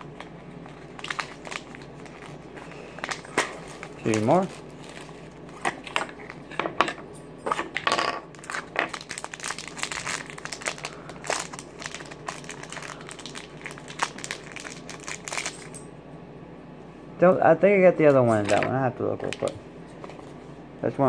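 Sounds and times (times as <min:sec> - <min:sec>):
plastic packaging crinkling: 0:00.0 - 0:06.4, 0:08.3 - 0:15.8.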